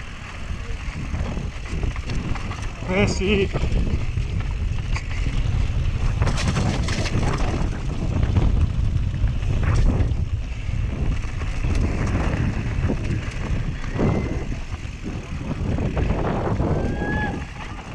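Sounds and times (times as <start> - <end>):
bike clattering over stones: 0.0 - 17.9
tyre rumble: 0.0 - 17.9
wind buffeting microphone: 0.0 - 17.9.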